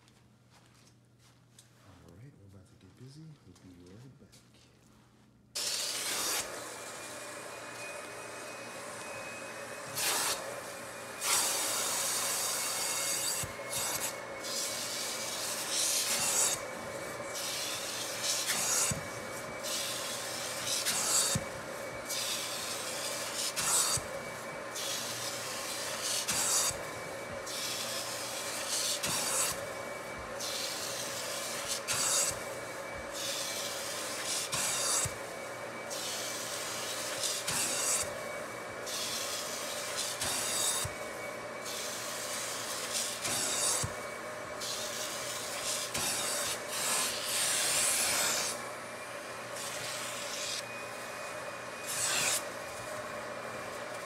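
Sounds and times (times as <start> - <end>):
extractor motor humming: 5.6 - 54.0
spray and suction hiss: 11.2 - 24.1, 24.7 - 35.2, 38.8 - 41.0, 41.6 - 44.0, 44.6 - 48.6.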